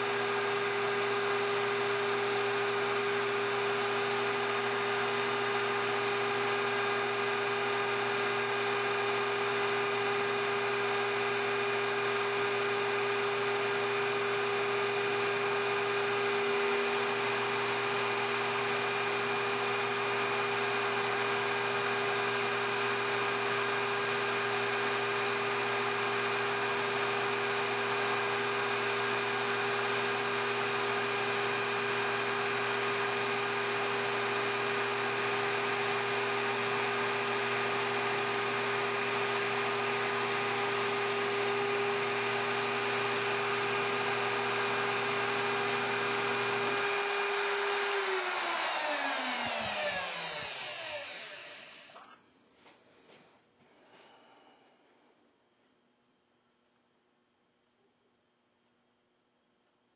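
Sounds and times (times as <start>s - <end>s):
lathe humming and whining: 0.0s - 52.1s
machine spinning down: 45.0s - 52.1s.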